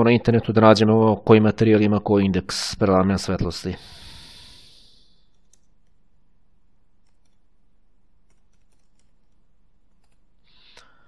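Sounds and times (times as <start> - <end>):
low room noise: 0.0 - 11.0
keyboard keystrokes: 7.0 - 7.5, 8.2 - 10.3.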